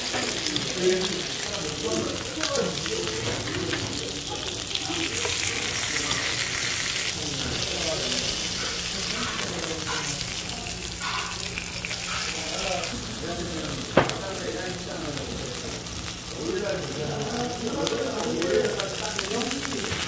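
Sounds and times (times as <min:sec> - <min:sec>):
meat sizzling: 0:00.0 - 0:20.0.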